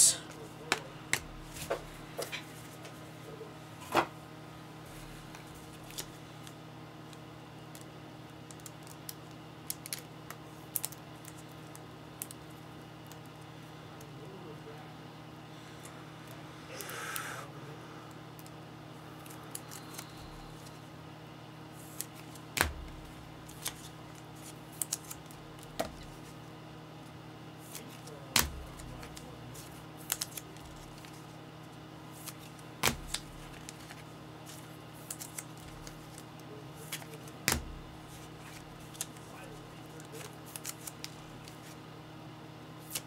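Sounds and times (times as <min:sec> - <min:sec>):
steady low hum: 0:00.0 - 0:43.0
card sleeves clicking and rustling: 0:21.8 - 0:26.4, 0:27.6 - 0:31.3, 0:32.2 - 0:41.8.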